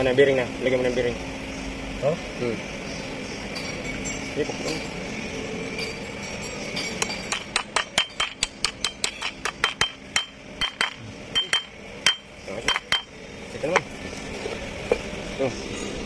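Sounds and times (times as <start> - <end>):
hammer tapping metal: 5.8 - 13.1.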